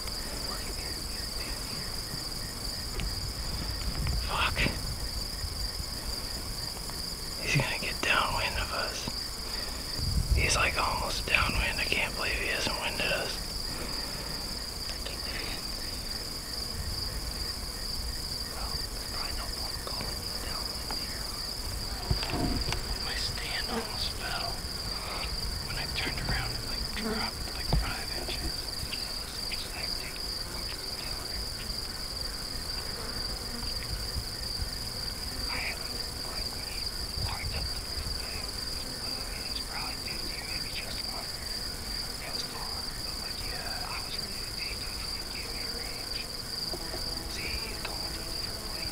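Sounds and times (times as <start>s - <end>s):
crickets chirring: 0.0s - 48.9s
faint rustles and taps: 2.9s - 4.8s, 19.2s - 21.2s, 22.0s - 23.6s, 27.4s - 30.3s.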